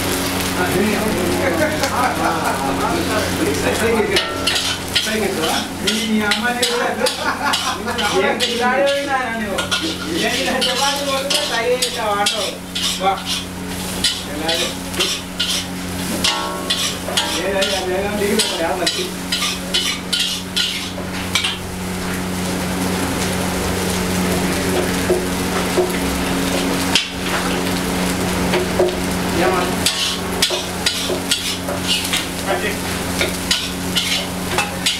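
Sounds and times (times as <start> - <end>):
frying sizzle: 0.0 - 34.9
metal spatula scraping a wok: 4.2 - 21.6, 29.8 - 32.4, 33.2 - 34.9.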